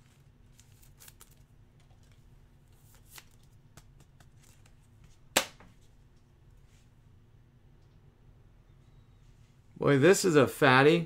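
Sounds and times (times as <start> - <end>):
cards rustling: 0.0 - 5.2.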